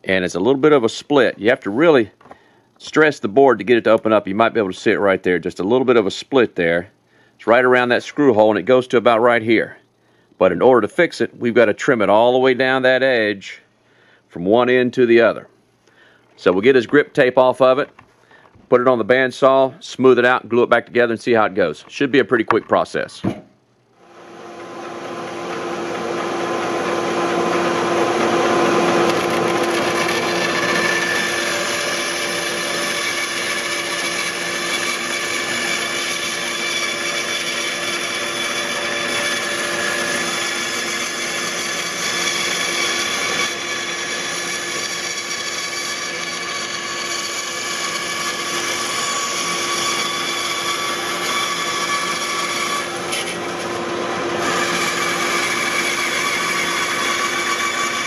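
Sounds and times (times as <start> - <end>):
bandsaw cutting wood: 24.0 - 58.0.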